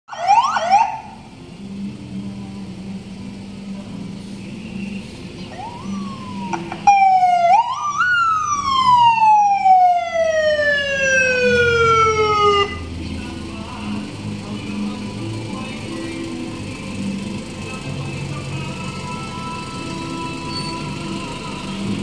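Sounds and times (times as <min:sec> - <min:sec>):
siren wailing: 0:00.1 - 0:01.2, 0:05.5 - 0:12.9.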